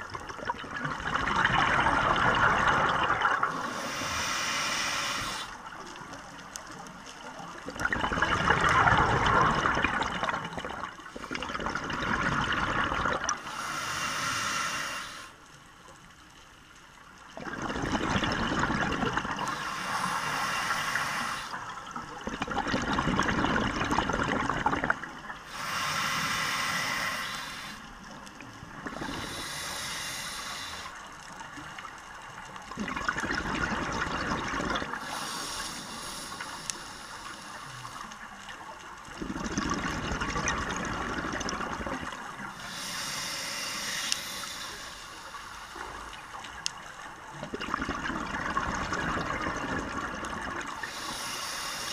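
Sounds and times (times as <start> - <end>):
regulator hissing inhale: 3.5 - 5.6, 13.4 - 15.4, 19.4 - 21.6, 25.4 - 28.0, 29.0 - 31.1, 35.0 - 38.4, 42.4 - 46.4, 50.8 - 51.9
gurgling exhaust bubbles: 7.8 - 13.4, 22.2 - 25.0, 39.2 - 42.2, 47.5 - 51.1.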